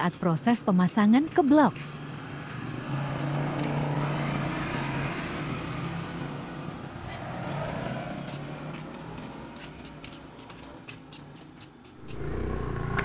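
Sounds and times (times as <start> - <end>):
vehicle engine running: 8.2 - 13.0.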